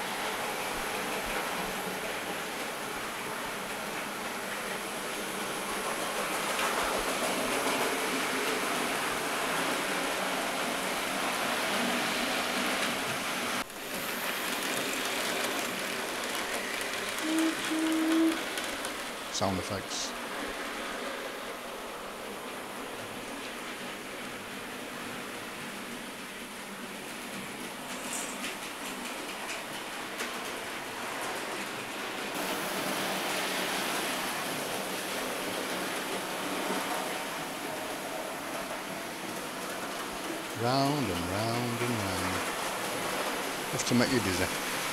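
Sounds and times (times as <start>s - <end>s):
model train running on track: 0.0s - 44.9s.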